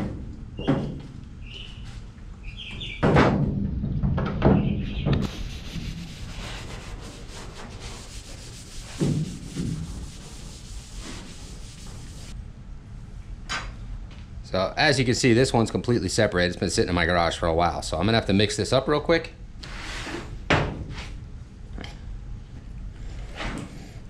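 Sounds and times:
towel rubbing on metal: 5.2s - 12.4s.

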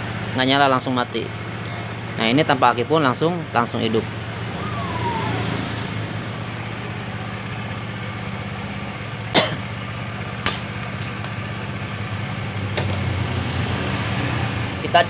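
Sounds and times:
scooter engine idling: 3.6s - 12.5s.

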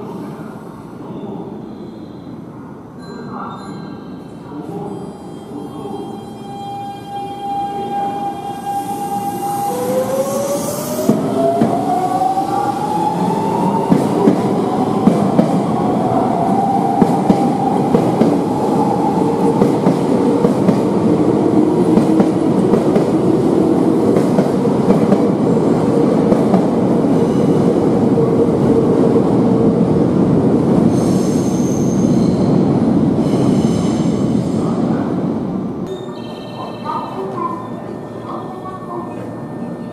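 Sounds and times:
train cars rumbling and rattling: 10.0s - 39.9s.

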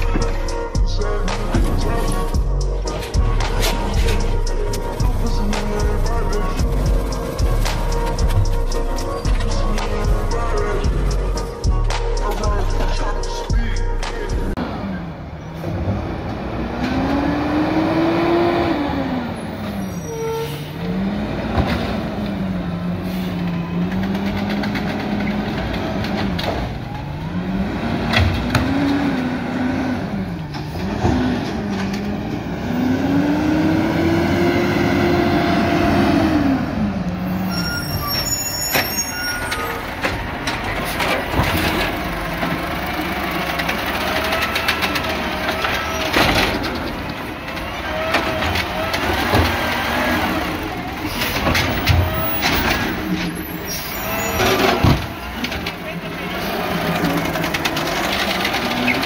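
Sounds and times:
diesel truck engine revving: 0.0s - 59.0s.

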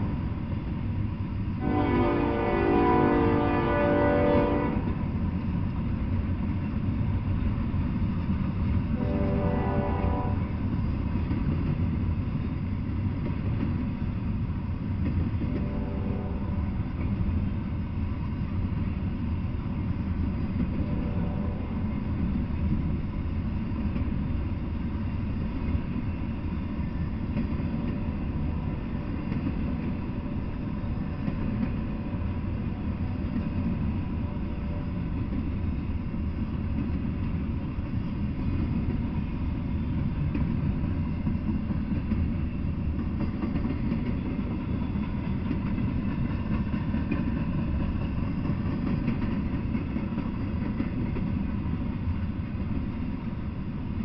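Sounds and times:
steel wheels on rails: 0.0s - 54.0s.

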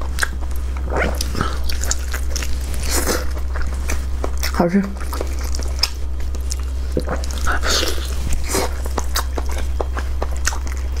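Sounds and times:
steady low hum: 0.0s - 11.0s
wet chewing and smacking: 0.0s - 11.0s.

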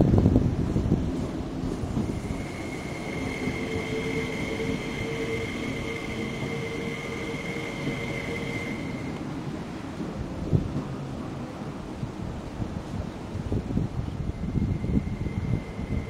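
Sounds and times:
train high-pitched whine: 1.6s - 9.3s, 14.0s - 16.0s.

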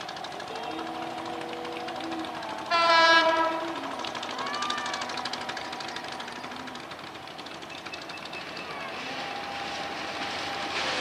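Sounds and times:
diesel locomotive engine drone: 0.0s - 11.0s
locomotive horn blast: 1.0s - 4.0s.

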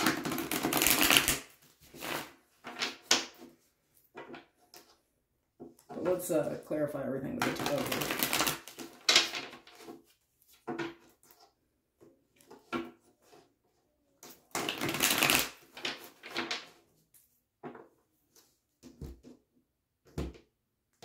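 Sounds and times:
cards being shuffled: 0.0s - 3.5s, 7.4s - 11.5s, 14.2s - 16.8s.

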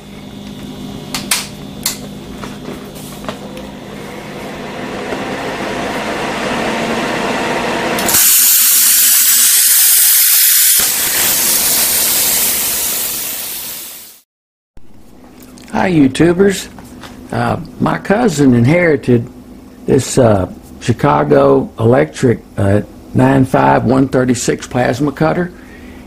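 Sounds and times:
plasma cutter machine hum: 3.0s - 14.2s
hiss of air through torch: 8.0s - 14.2s.

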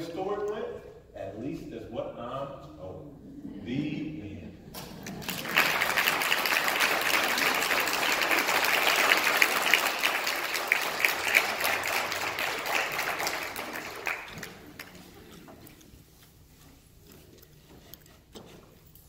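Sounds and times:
audience applauding: 4.8s - 15.4s.

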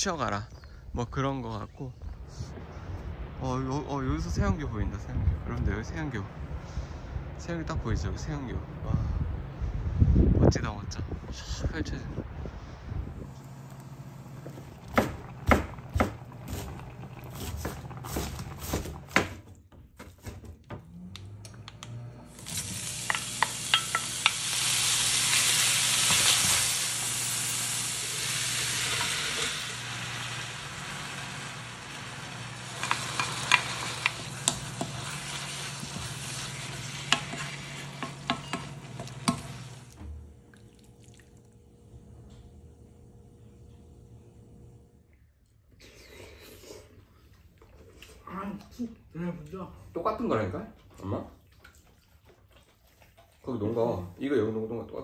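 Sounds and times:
cabbage sizzling in a pan: 13.3s - 19.2s, 22.3s - 40.0s.

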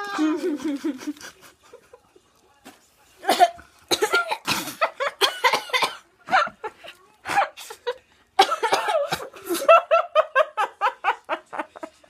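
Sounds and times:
girl coughing and laughing: 3.2s - 6.6s, 7.2s - 10.0s.

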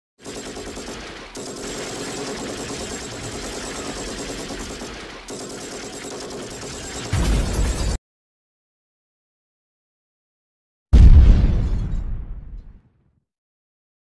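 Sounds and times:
rapid automatic gunfire: 0.2s - 7.9s.

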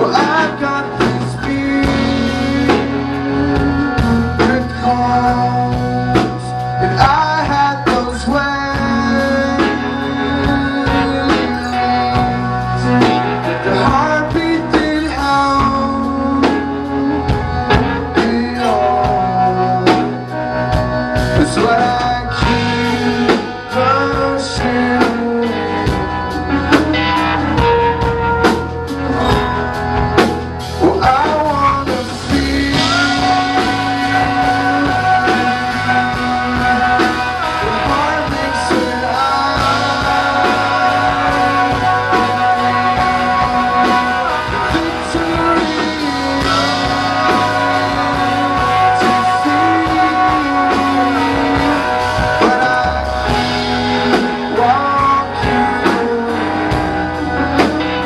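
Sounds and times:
live rock band playing: 0.0s - 58.0s
ringing guitar chords: 0.0s - 58.0s.

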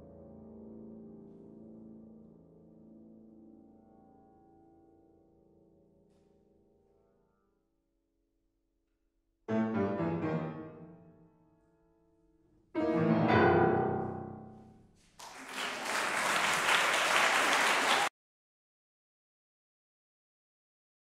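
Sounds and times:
grand piano chords: 9.5s - 15.0s
audience applause: 15.2s - 18.1s.

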